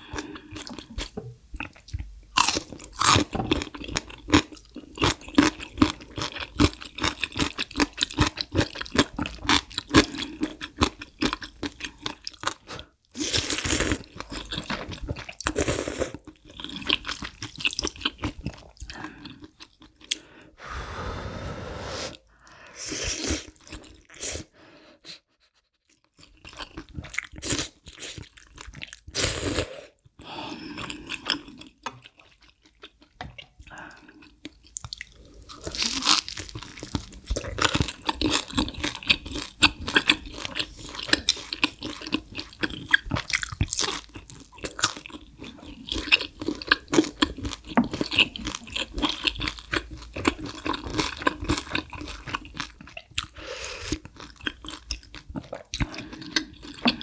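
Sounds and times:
slurping and chewing noodles: 0.0s - 20.4s, 21.3s - 57.0s
crunching fried food: 0.1s - 15.6s, 16.2s - 20.1s, 34.5s - 57.0s.

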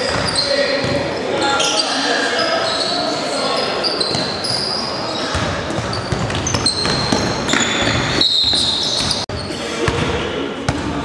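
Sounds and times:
sneaker squeaks on floor: 0.0s - 9.6s
basketball bouncing on wooden court: 5.3s - 9.2s.

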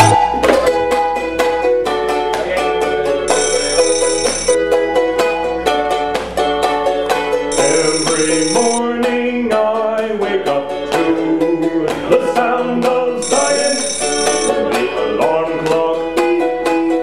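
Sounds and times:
high steady tone: 0.0s - 0.2s, 3.3s - 4.6s, 7.5s - 8.8s, 13.2s - 14.6s
plucked banjo-like strings: 4.6s - 7.5s
man singing: 7.6s - 17.0s.

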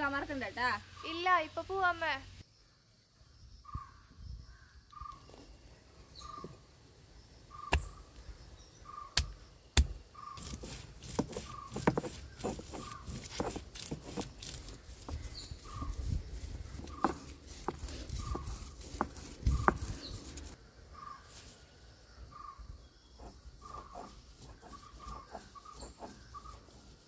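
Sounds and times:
stone crushing strokes: 9.2s - 20.6s, 23.2s - 27.0s
stone roller knocking on slab: 9.2s - 20.6s.

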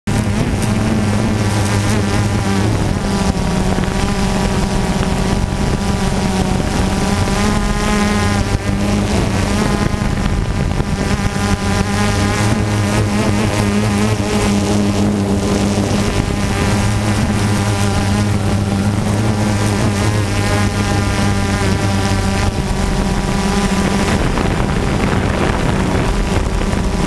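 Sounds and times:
drone propellers buzzing: 0.1s - 27.0s.

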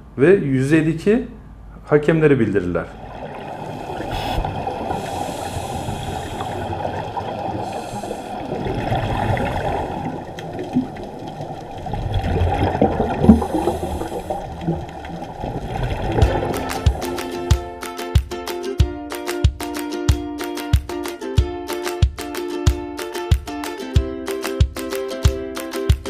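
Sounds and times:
muffled underwater water rush: 2.9s - 17.6s
short hissing bursts: 3.6s - 6.8s, 7.6s - 8.4s, 13.5s - 14.4s.

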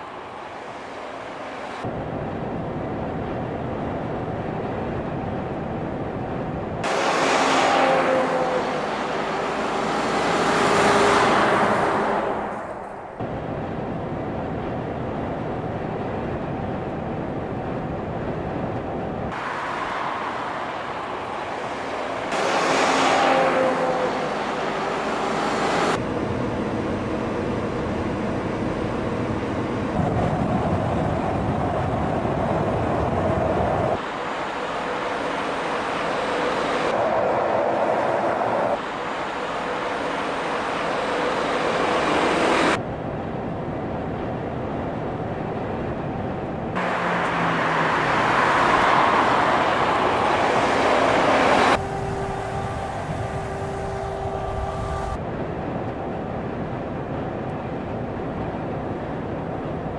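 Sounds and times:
highway road noise: 0.0s - 59.9s
truck passing by: 6.8s - 13.4s, 19.3s - 42.8s, 46.7s - 55.2s.

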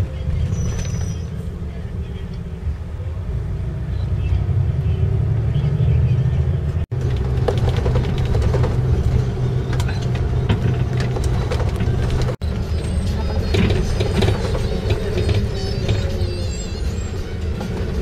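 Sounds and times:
bus engine and road rumble: 0.0s - 18.0s.

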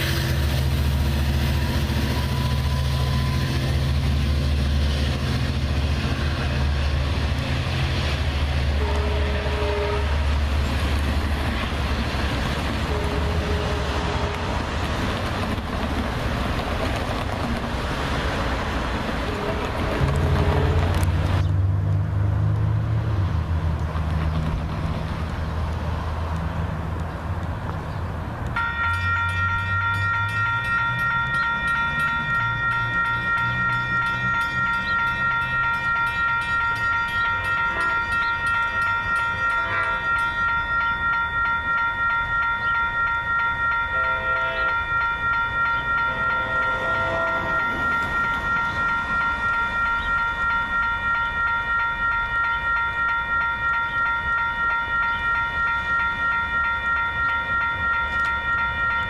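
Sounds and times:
faint train horn: 0.0s - 0.7s, 1.3s - 3.9s, 8.7s - 10.5s, 12.8s - 14.6s, 19.2s - 21.1s, 37.1s - 40.2s, 43.9s - 44.9s, 46.0s - 47.7s
railroad crossing bell ringing: 0.0s - 21.4s, 27.9s - 59.0s.

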